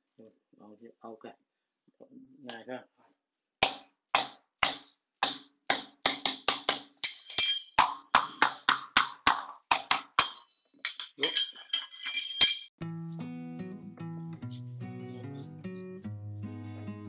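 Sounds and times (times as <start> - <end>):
hammer knocking on concrete: 3.6 - 11.1.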